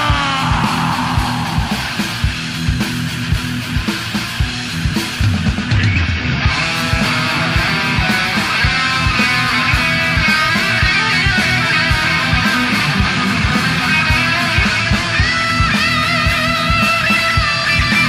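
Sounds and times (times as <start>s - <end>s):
guitar-led music: 0.0s - 18.0s
steady drum beat: 0.0s - 18.0s.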